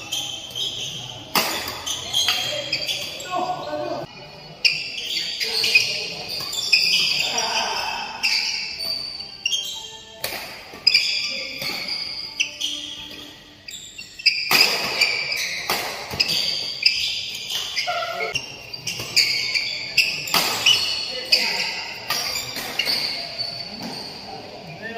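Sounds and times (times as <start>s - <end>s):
shoes squeaking on court floor: 0.0s - 24.9s
rackets striking shuttlecock: 20.0s - 21.0s.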